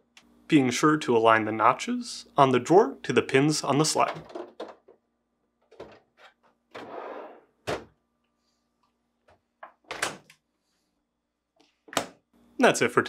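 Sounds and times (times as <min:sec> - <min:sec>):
drawer sliding scrape: 0:05.8 - 0:07.9.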